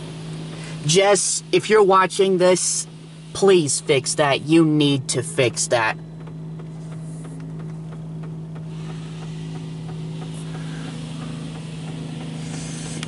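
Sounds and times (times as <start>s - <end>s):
low machine hum: 0.0s - 13.0s
water spraying against car: 0.0s - 13.0s.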